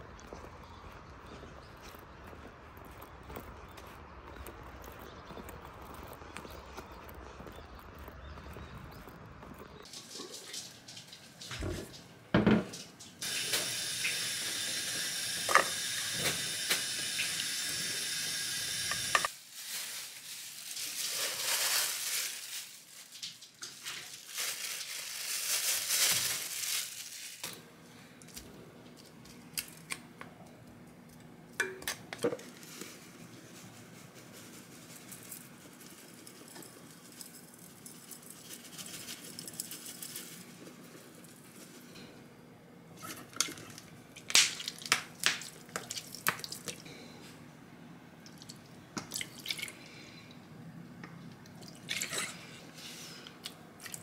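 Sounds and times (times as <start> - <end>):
steady hiss: 13.1 - 22.7
plastic bag rustling: 19.2 - 27.7, 32.4 - 42.0.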